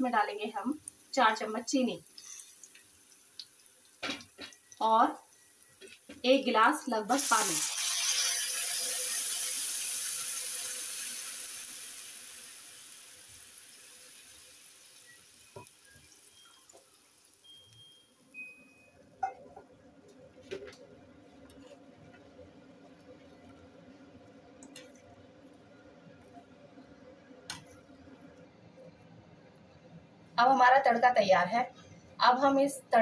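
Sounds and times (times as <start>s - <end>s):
water hissing in hot oil: 0.0s - 18.4s.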